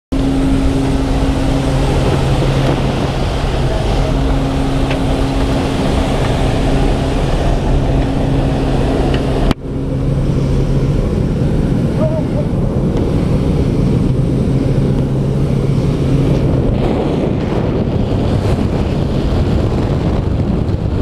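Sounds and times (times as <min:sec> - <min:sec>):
propeller aircraft engine droning: 0:00.1 - 0:21.0
wind rushing through open door: 0:00.1 - 0:21.0.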